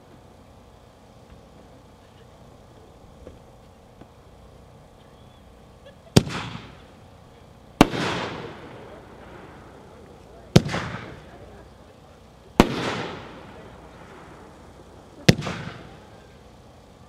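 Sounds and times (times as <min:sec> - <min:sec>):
firework shell burst: 0:06.1 - 0:07.0, 0:07.8 - 0:11.7, 0:12.3 - 0:16.8
firework launch bang: 0:06.2 - 0:06.9, 0:07.8 - 0:11.4, 0:12.6 - 0:16.2.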